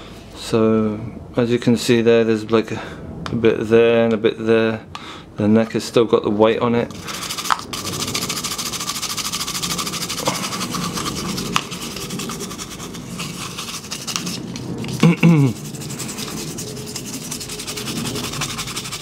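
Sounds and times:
toothbrush scrubbing plastic: 6.9 - 19.0.

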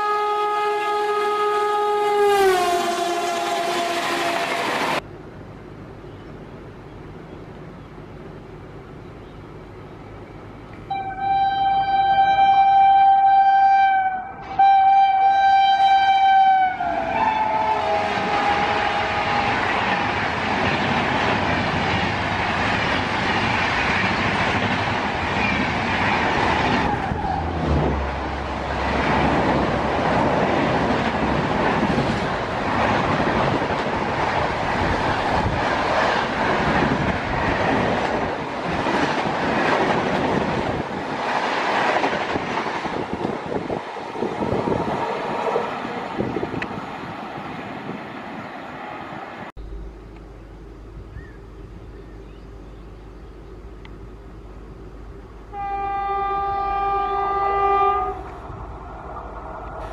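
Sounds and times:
locomotive horn: 0.0 - 5.0, 10.9 - 20.1, 55.5 - 58.4
passing train rushing: 0.0 - 59.9.

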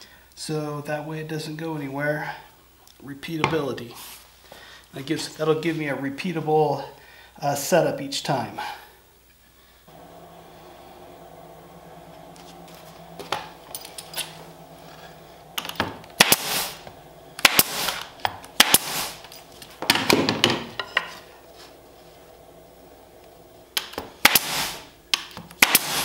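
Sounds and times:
nail gun firing into wood: 15.8 - 16.7, 17.4 - 19.2, 23.8 - 24.8, 25.6 - 26.0.

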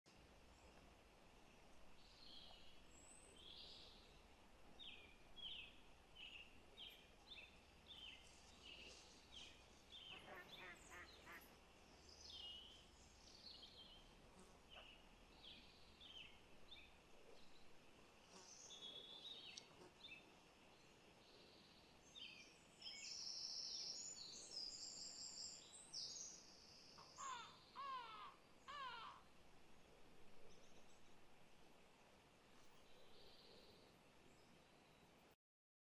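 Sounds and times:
birds chirping: 1.8 - 29.3.

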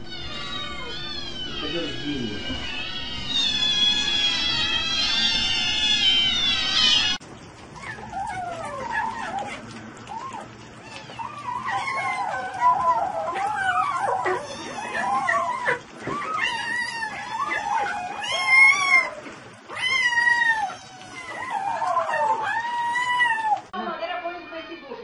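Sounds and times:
animal wavering calls: 0.0 - 23.7.

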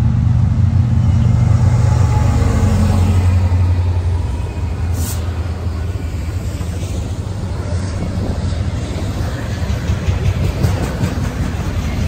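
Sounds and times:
train rumbling past: 0.0 - 12.0
brief high hiss: 4.9 - 5.3.

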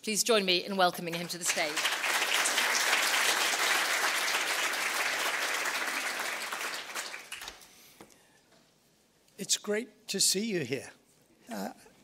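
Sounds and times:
audience applauding: 1.0 - 7.7.

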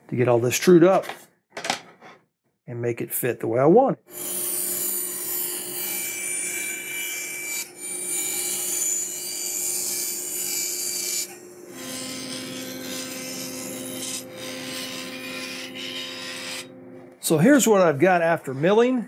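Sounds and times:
bandsaw cutting wood: 4.1 - 16.7.

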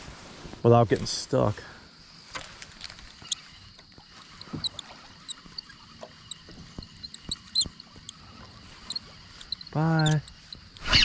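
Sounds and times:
fishing reel clicks and knocks: 2.8 - 11.0
water lapping around boat: 3.1 - 11.0.

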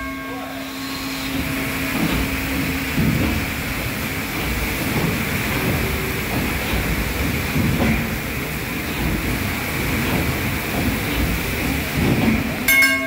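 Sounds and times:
steam engine running: 0.0 - 13.0.

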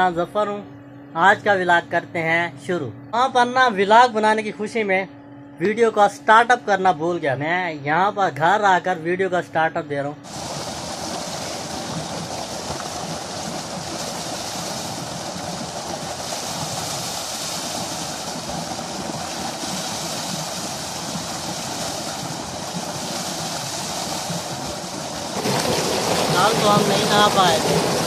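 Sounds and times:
water gushing into tank: 10.2 - 28.0.

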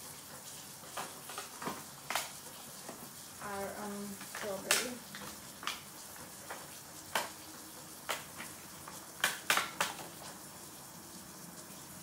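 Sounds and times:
plastic punnets clicking and tapping: 4.2 - 7.4, 8.0 - 10.3.

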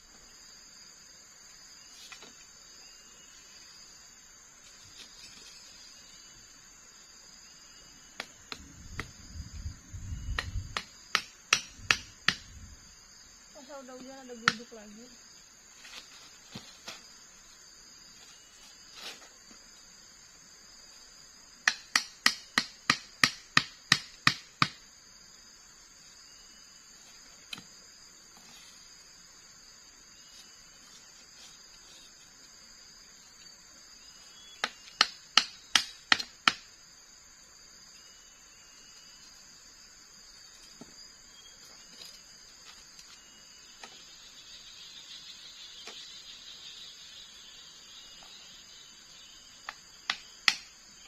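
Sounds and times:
wooden stakes being struck: 10.2 - 12.5, 21.6 - 24.8, 34.6 - 36.7, 49.6 - 50.8.

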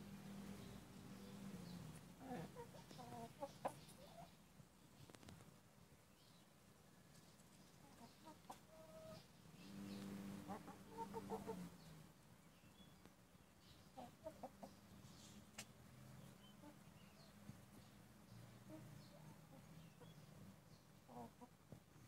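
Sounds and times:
hens clucking: 0.4 - 4.4, 7.8 - 12.0, 14.0 - 20.3, 21.0 - 21.8.

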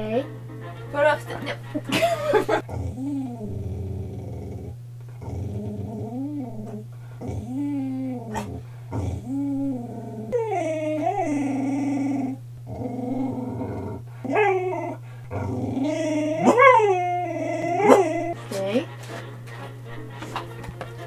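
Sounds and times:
dog howling and whining: 5.6 - 18.4.

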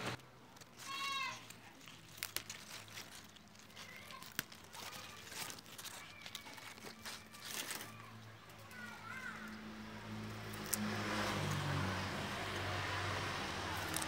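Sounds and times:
lettuce leaves rustling: 0.0 - 14.0
plastic cups crinkling: 0.2 - 9.2.

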